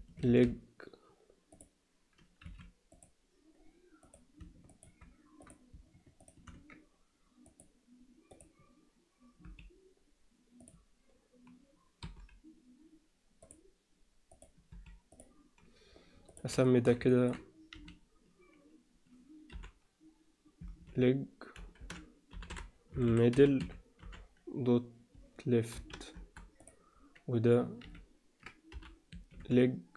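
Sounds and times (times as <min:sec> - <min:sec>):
keyboard and mouse clicks: 0:04.0 - 0:06.8, 0:14.3 - 0:16.5.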